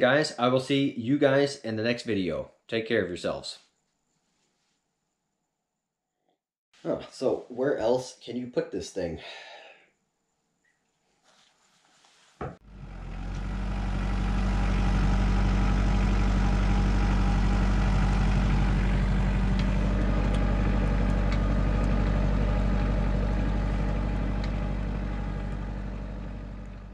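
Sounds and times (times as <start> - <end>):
tractor engine droning: 12.6 - 26.9.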